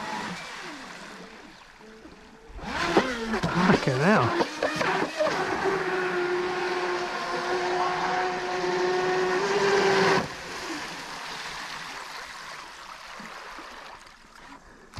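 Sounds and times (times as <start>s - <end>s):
motor high whine: 0.0s - 11.2s.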